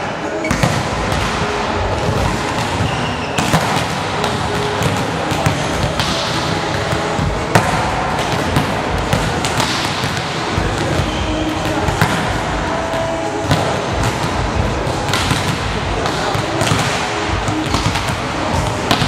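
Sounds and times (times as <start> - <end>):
steady background noise: 0.0 - 19.0
volleyballs smacking on hard court: 0.4 - 19.0.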